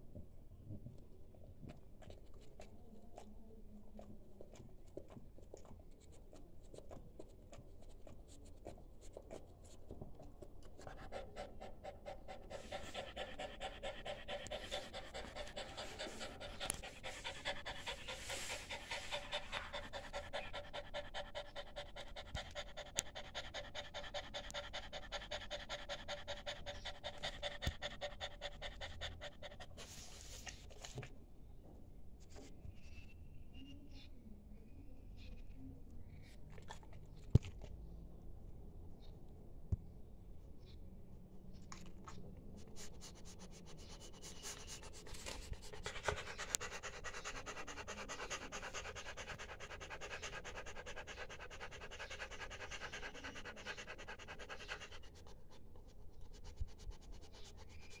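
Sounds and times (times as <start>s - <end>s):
dog panting rapidly: 10.6s - 30.2s, 42.8s - 58.0s.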